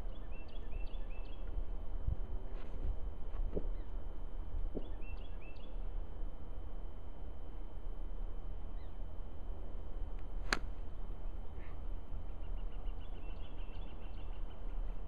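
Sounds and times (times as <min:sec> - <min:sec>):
steady low rumble: 0:05.8 - 0:15.0
golf club striking ball: 0:10.2 - 0:10.9.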